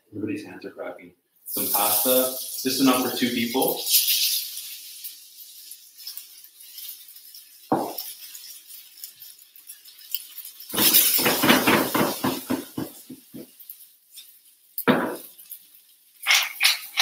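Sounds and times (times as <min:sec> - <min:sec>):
kitchenware knocking and clinking: 0:07.7 - 0:08.1, 0:10.7 - 0:13.5, 0:14.9 - 0:15.3.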